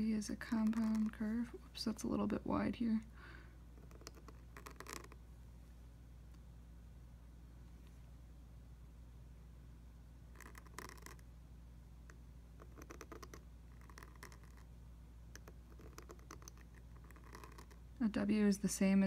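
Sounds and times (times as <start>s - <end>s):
pen nib scratching paper: 0.5s - 1.3s, 3.8s - 5.2s, 10.3s - 11.2s, 12.6s - 14.7s, 15.4s - 17.8s.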